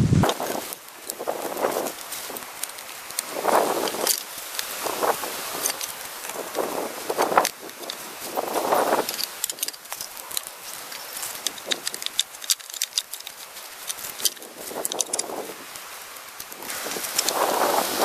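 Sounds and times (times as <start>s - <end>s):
rustling: 0.0s - 18.0s
bamboo pieces clacking: 0.3s - 17.4s.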